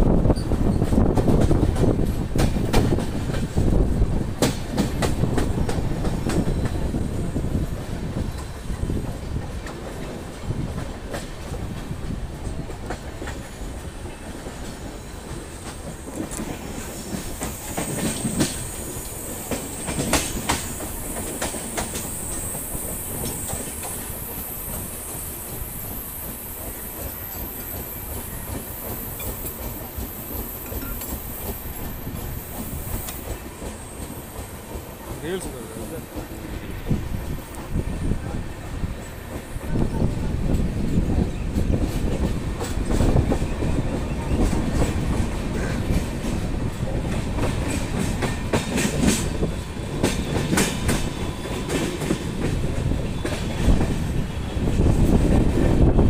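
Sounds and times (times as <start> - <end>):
train rumbling on rails: 0.0 - 56.0
wheels clacking over rail joints: 7.9 - 24.1, 39.0 - 56.0.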